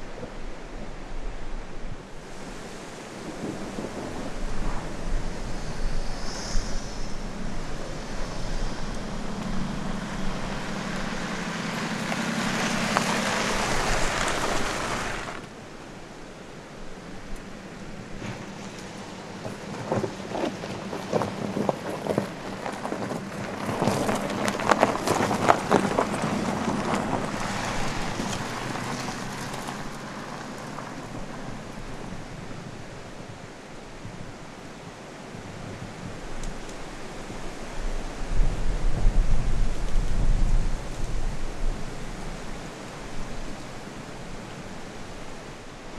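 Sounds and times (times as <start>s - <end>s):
car engine hum: 3.3s - 33.2s
tyres crunching on gravel: 7.2s - 15.5s, 18.2s - 32.0s.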